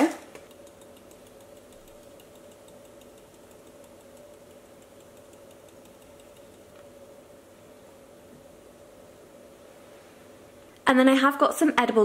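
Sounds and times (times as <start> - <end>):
faint steady hum: 0.0 - 12.0
light fast ticking: 0.4 - 7.0.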